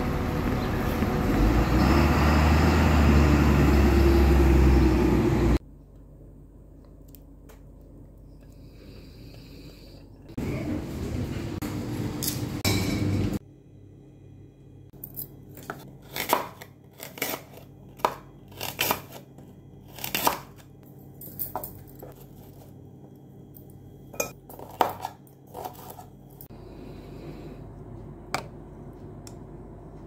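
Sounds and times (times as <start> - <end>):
spoon clinking against bowl: 24.2 - 24.4.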